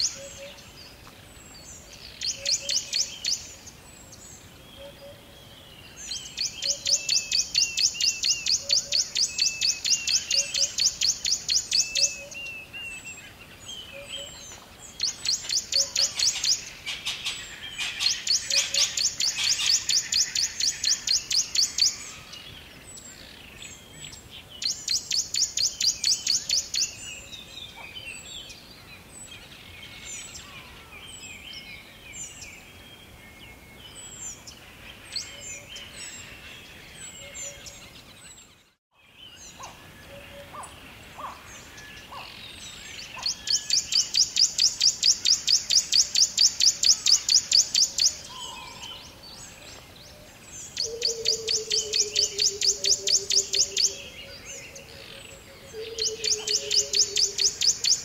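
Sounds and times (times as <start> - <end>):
birds chirping: 0.0 - 58.0
faint background hiss: 0.0 - 58.0
rhythmic pulsing bird call: 14.0 - 22.1, 50.7 - 58.0.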